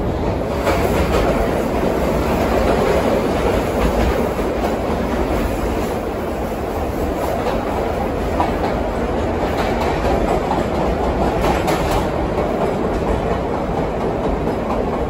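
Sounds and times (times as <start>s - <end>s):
subway wheels rumbling: 0.0s - 15.0s
clicks over rail joints: 8.4s - 15.0s.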